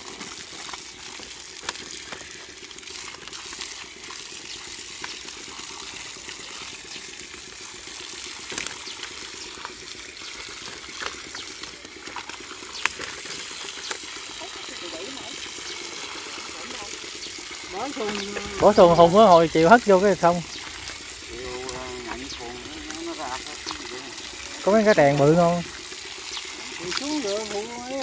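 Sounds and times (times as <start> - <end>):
water pouring onto fish: 0.0 - 28.0.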